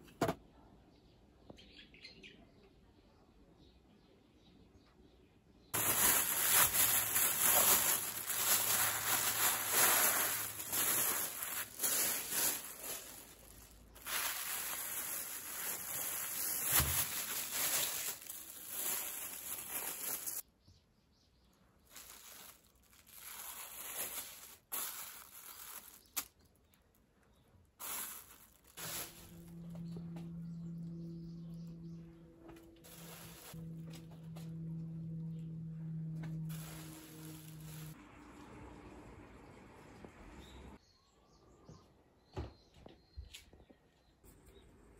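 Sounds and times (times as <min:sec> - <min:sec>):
plastic bag crinkling: 0:05.8 - 0:20.4, 0:21.9 - 0:30.4, 0:32.8 - 0:33.9, 0:36.3 - 0:38.0.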